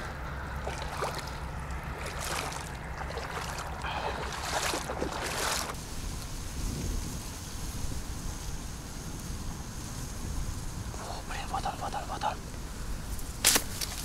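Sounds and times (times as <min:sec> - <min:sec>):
low steady rumble: 0:00.0 - 0:13.4
water splashing from wading: 0:00.1 - 0:05.9.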